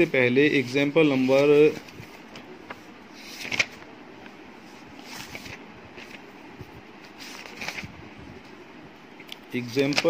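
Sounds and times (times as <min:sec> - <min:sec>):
paper pages turning: 0:00.6 - 0:06.4, 0:07.0 - 0:07.9, 0:09.6 - 0:10.0.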